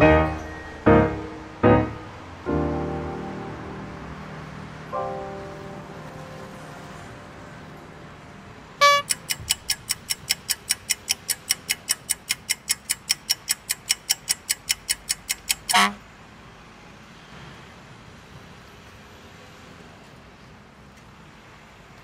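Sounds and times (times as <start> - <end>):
short electronic tone: 8.8 - 9.1
quick electronic ticking: 8.8 - 15.9.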